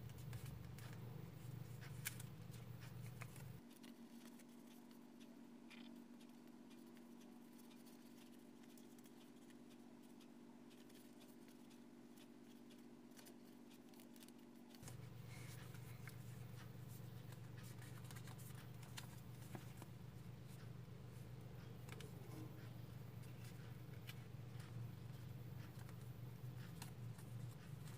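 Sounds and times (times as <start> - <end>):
low steady hum: 0.0 - 27.9.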